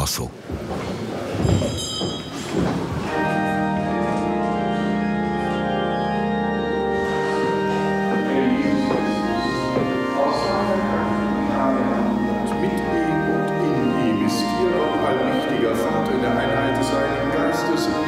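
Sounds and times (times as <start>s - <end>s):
church organ chords: 3.0s - 18.0s.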